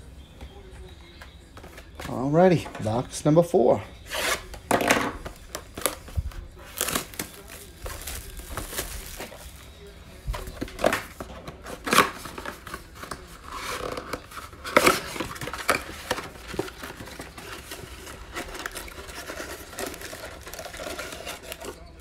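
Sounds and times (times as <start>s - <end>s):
cardboard ripping: 4.0s - 9.7s, 10.3s - 21.8s
paper and wrapper rustling: 4.0s - 22.0s.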